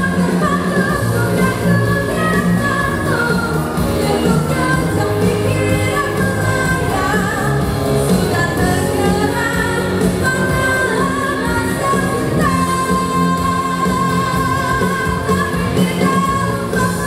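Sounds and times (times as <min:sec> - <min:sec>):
woman singing into microphone: 0:00.0 - 0:17.0.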